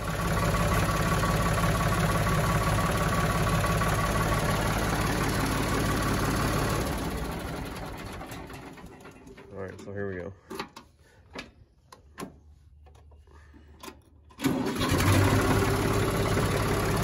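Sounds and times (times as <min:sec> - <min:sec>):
tractor engine running: 0:00.0 - 0:09.8, 0:13.8 - 0:17.0.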